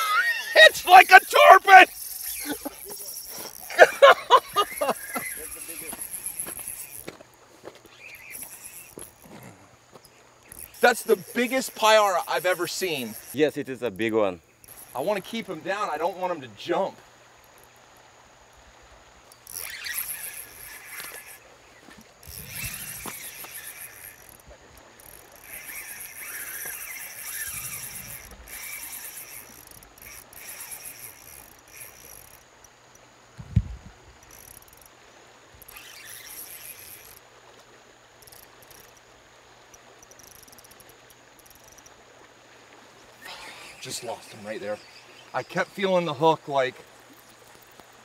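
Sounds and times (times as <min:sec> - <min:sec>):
spinning reel running: 0:00.6 - 0:07.1, 0:08.2 - 0:09.2, 0:10.5 - 0:14.0, 0:14.6 - 0:15.2, 0:19.3 - 0:21.4, 0:22.2 - 0:32.7, 0:34.2 - 0:34.9, 0:35.6 - 0:37.2, 0:38.2 - 0:39.0, 0:40.0 - 0:41.9.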